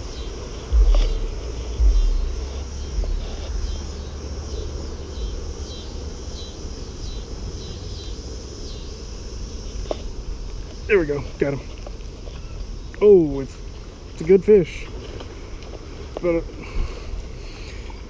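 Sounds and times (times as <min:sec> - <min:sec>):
wind buffeting microphone: 0:00.0 - 0:05.6.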